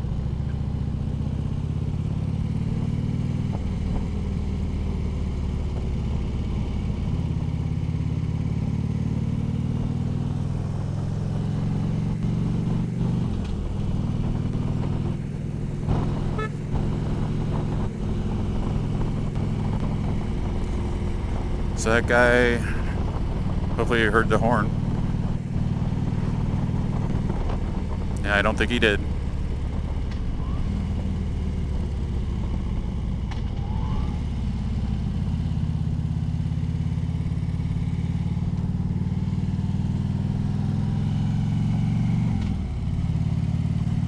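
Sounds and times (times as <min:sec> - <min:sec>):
motorcycle engine running: 0:00.0 - 0:44.0
short horn blip: 0:16.3 - 0:16.6.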